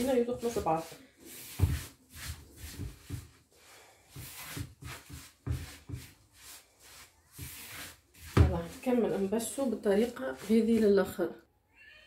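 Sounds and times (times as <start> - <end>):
gritty rubbing of grains: 4.2 - 9.3.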